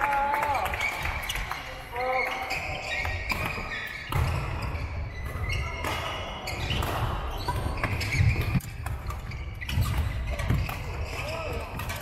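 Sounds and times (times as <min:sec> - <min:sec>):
shoe squeaks: 0:00.8 - 0:12.0
racket hits: 0:03.0 - 0:12.0.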